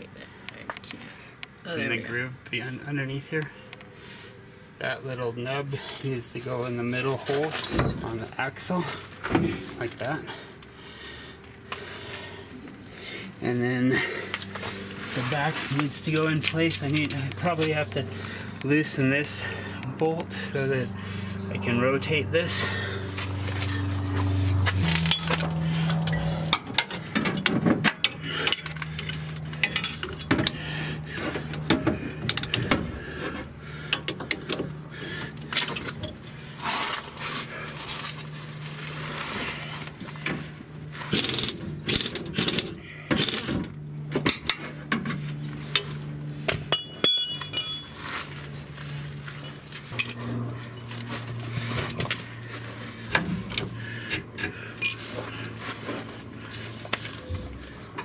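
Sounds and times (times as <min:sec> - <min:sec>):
ringing metal clink: 0:46.7 - 0:48.6, 0:50.0 - 0:50.2.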